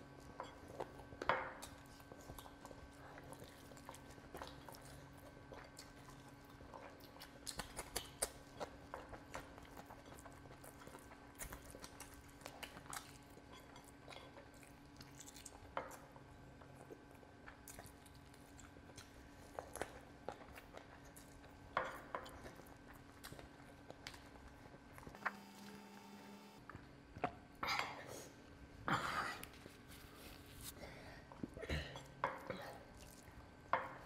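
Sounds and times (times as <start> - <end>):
faint steady hum: 0.0 - 34.0
wet chewing: 0.1 - 25.3, 32.8 - 34.0.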